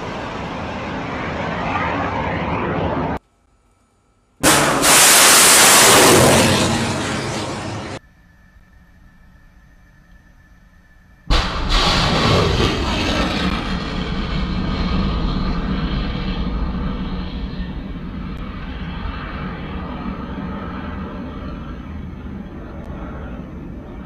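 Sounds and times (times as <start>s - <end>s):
missile rocket motor roaring: 4.4s - 8.0s, 11.3s - 24.0s.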